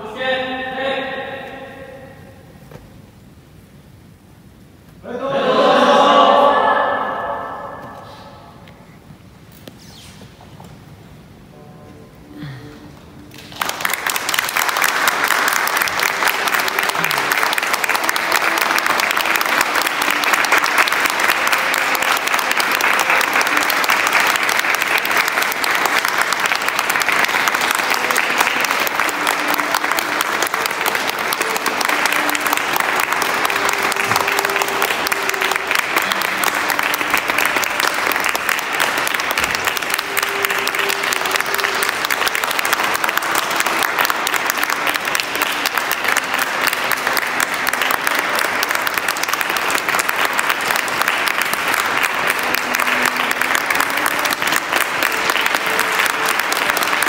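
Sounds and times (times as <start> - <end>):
audience clapping: 7.1 - 8.8, 13.2 - 57.0.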